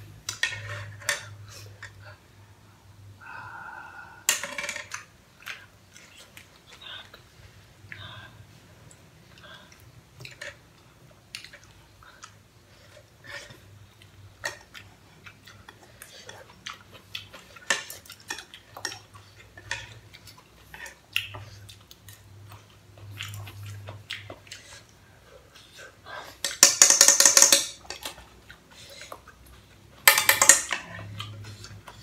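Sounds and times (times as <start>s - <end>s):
chewing: 8.8s - 26.5s, 27.8s - 30.0s, 30.8s - 32.0s
utensils clicking on a saucepan: 26.4s - 28.2s, 30.0s - 31.4s.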